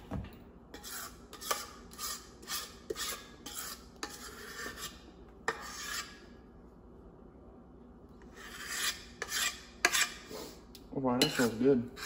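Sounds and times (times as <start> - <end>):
spoon scraping batter from bowl: 0.7 - 6.4, 8.2 - 12.0.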